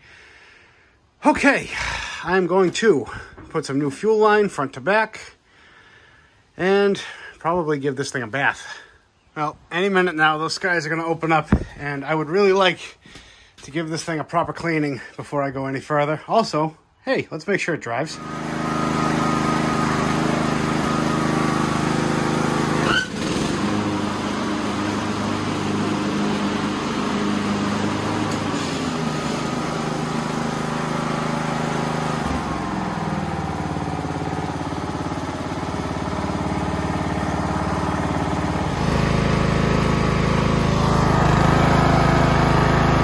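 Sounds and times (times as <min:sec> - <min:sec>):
lawn tractor engine running: 0:18.0 - 0:43.0.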